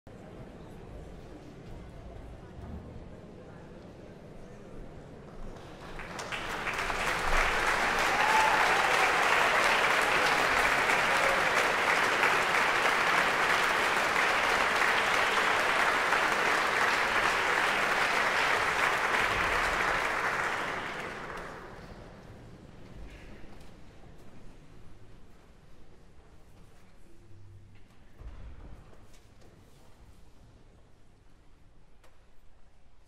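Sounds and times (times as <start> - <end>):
audience applauding: 5.6 - 22.0.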